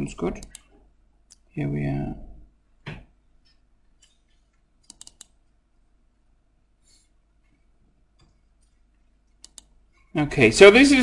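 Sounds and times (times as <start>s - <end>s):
computer mouse clicks: 0.3s - 1.5s, 3.4s - 5.4s, 8.2s - 10.1s.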